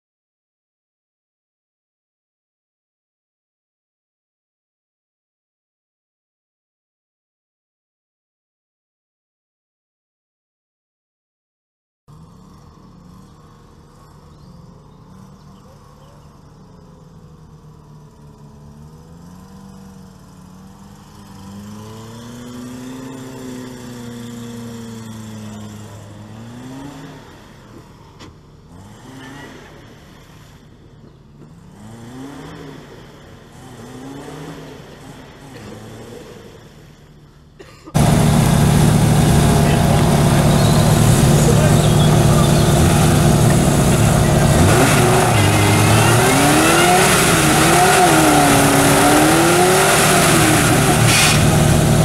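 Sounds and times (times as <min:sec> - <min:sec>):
small engine revving under load: 0:18.1 - 0:37.2, 0:38.0 - 0:52.0.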